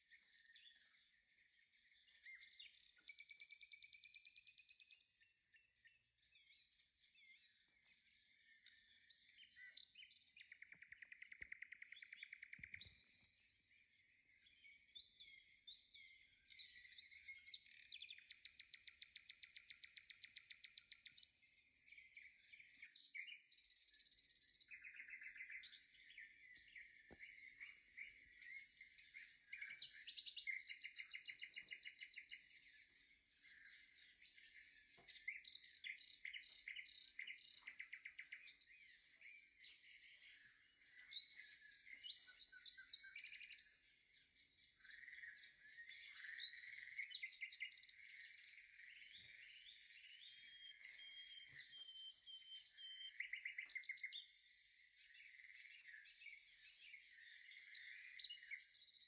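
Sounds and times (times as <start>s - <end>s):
songbirds chirping and trilling: 0.0s - 59.0s.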